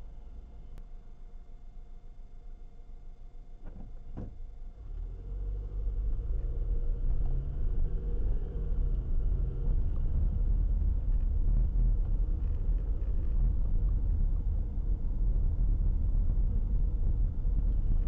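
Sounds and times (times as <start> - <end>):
car engine hum: 4.2 - 18.0
road rumble: 4.2 - 18.0.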